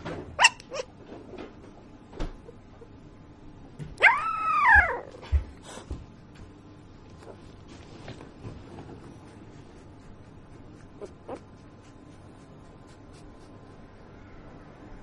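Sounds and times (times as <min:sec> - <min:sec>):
puppy whining: 0:00.4 - 0:00.9, 0:04.0 - 0:05.3, 0:10.8 - 0:11.7
puppy yipping: 0:00.4 - 0:00.9, 0:04.0 - 0:05.1.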